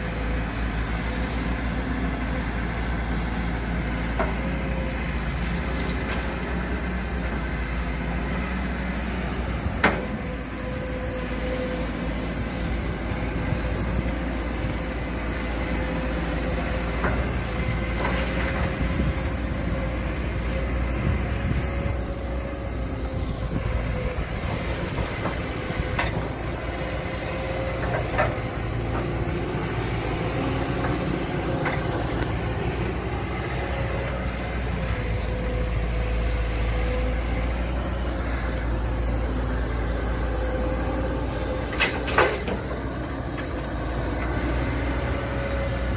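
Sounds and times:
excavator diesel engine running: 0.0 - 45.9.

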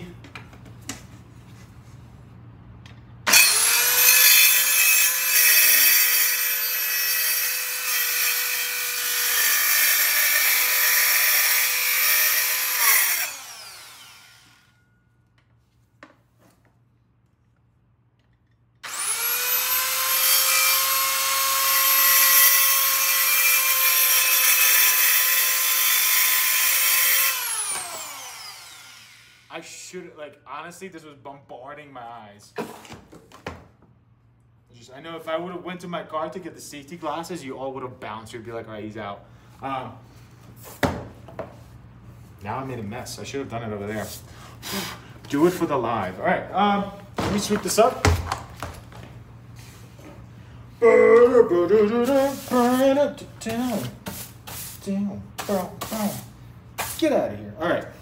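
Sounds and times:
circular saw cutting: 3.3 - 14.8, 18.8 - 29.5.

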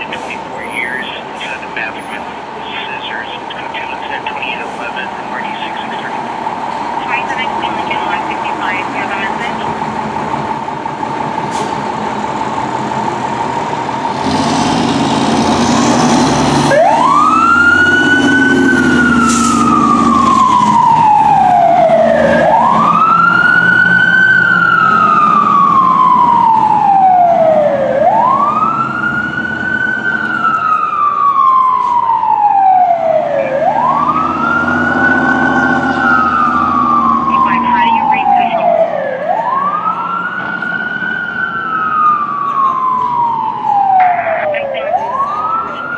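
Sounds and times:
diesel engine running: 0.0 - 23.2, 31.6 - 40.7
siren wailing: 16.6 - 45.9.

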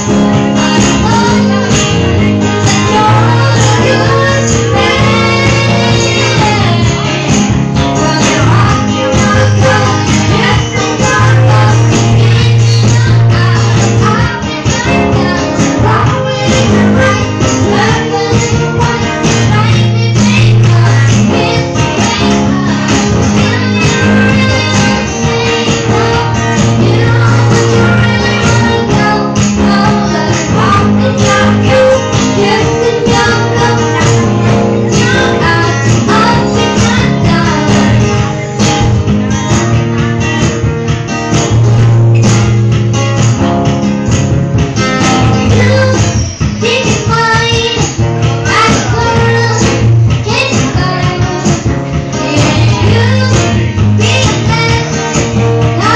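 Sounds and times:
person singing into microphone: 0.0 - 40.5, 44.6 - 55.9
strummed acoustic guitar: 0.0 - 55.9.

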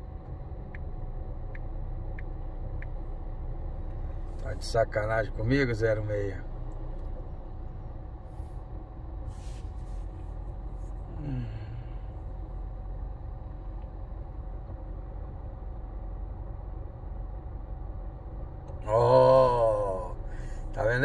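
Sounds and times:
car engine idling: 0.0 - 21.0
man murmuring: 11.1 - 12.0, 18.8 - 20.2.

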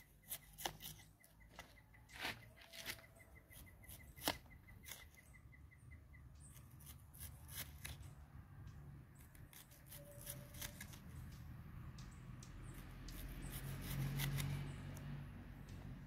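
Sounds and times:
knife slicing onion: 0.2 - 1.1, 6.8 - 8.0, 9.5 - 11.0
faint high chirp: 1.0 - 6.9.

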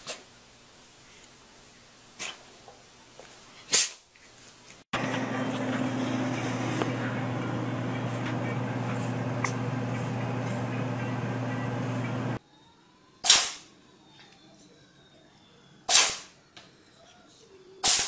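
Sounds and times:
electrical hum with hiss: 5.0 - 12.4.

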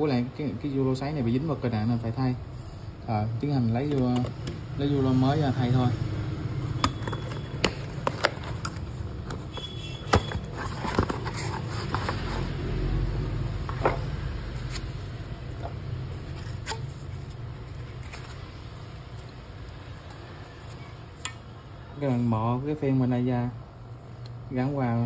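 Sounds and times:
cardboard box handled: 6.9 - 12.8.

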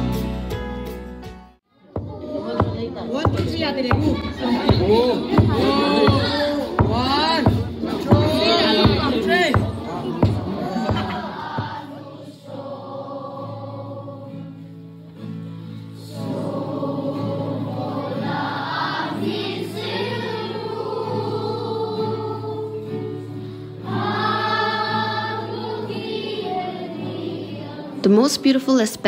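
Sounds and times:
choir singing long notes: 4.6 - 7.0, 9.9 - 15.0, 15.9 - 28.0.

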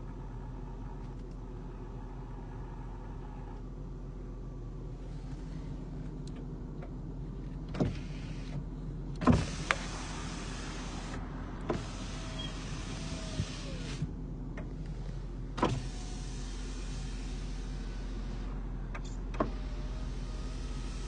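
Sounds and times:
steady low hum: 0.0 - 21.0
power window motor whirring: 7.6 - 21.0.

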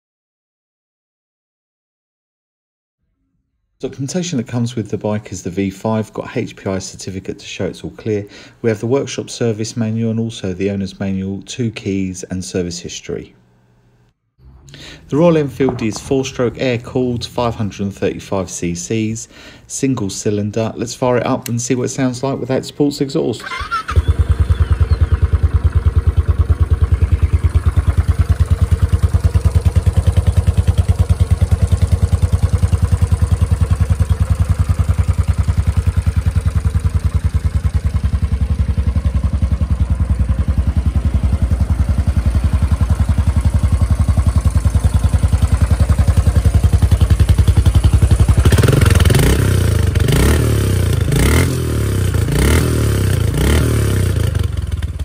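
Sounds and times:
motorcycle engine revving: 23.4 - 55.0
motorcycle engine idling: 23.5 - 55.0.

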